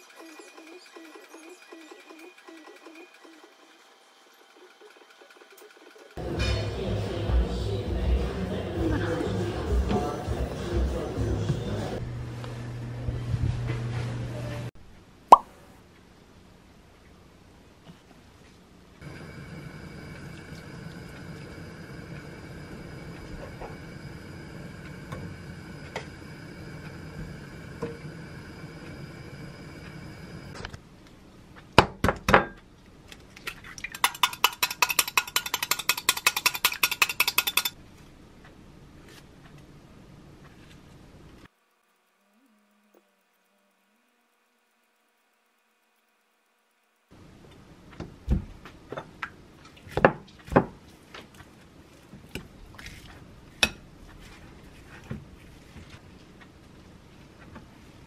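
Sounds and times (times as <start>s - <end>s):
eggs beaten clinking in glass: 33.8s - 37.8s
egg knocked against glass cup: 34.0s - 37.7s.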